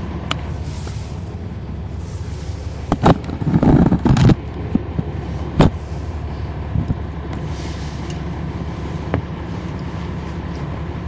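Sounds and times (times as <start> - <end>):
bus diesel engine running: 0.0 - 11.0.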